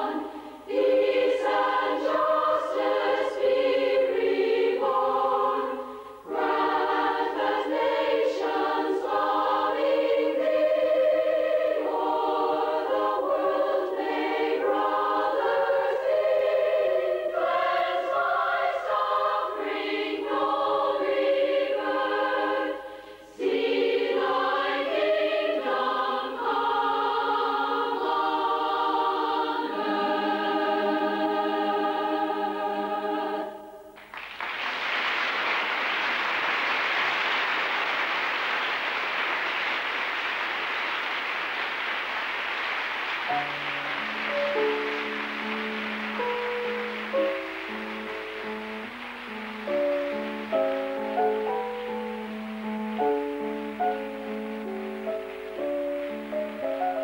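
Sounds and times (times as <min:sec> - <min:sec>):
women's choir singing a cappella: 0:00.0 - 0:34.0
applause: 0:34.0 - 0:51.9.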